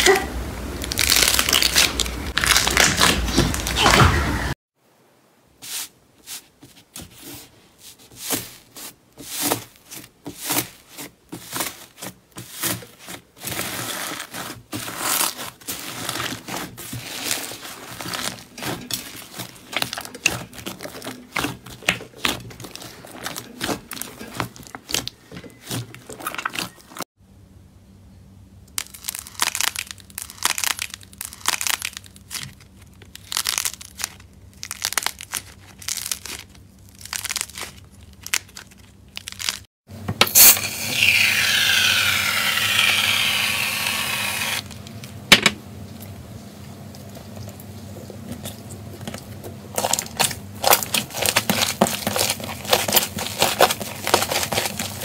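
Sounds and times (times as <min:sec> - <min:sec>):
slime crackling and squishing: 0:00.7 - 0:03.9, 0:08.2 - 0:27.1, 0:28.8 - 0:39.7, 0:48.5 - 0:55.0.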